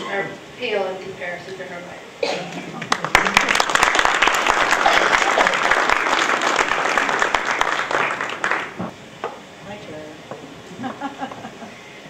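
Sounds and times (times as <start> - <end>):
audience applauding: 2.8 - 8.9.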